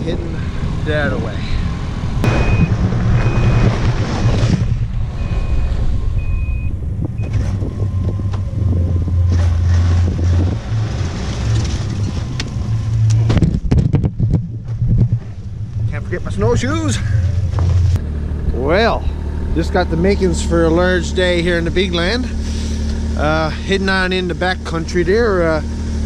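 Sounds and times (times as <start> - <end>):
snowmobile engine running: 0.0 - 26.0
reverse alarm beeping: 2.2 - 4.4, 5.1 - 9.2.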